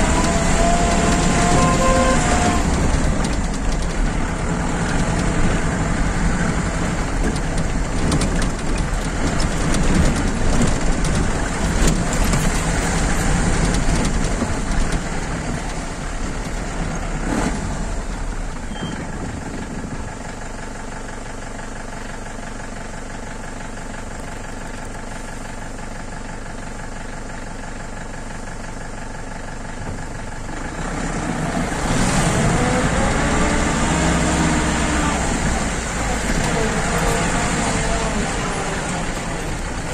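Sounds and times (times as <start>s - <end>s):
vehicle engine running: 0.0s - 39.9s.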